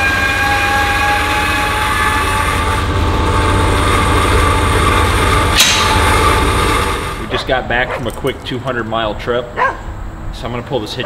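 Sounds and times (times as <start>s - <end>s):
electric jack motor whine: 0.0s - 7.3s.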